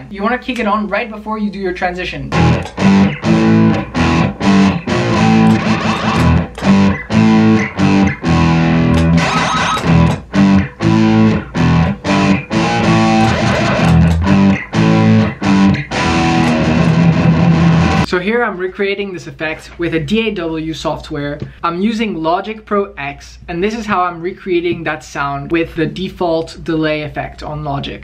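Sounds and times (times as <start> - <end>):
electric guitar strummed chords: 2.3 - 18.1.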